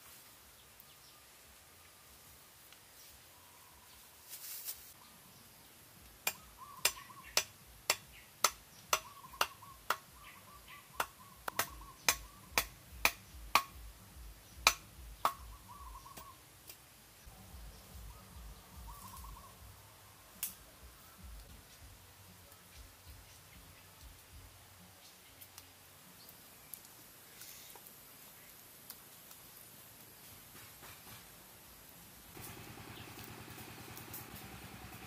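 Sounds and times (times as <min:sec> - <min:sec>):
machete striking wood: 0:06.2 - 0:10.1, 0:11.0 - 0:13.8, 0:14.6 - 0:15.5
bird warbling call: 0:06.3 - 0:07.5, 0:08.9 - 0:12.6, 0:15.3 - 0:16.4, 0:18.0 - 0:19.6.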